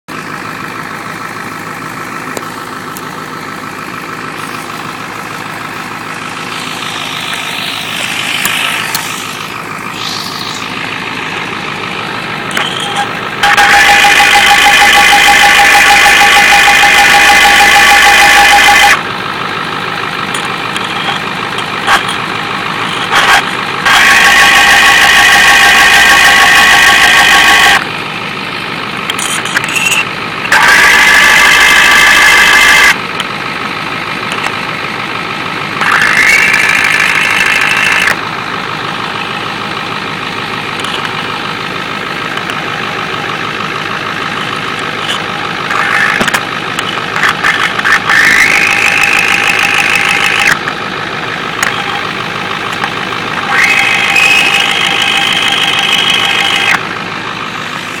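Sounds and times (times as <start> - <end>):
diesel engine clatter: 0.0 - 58.0.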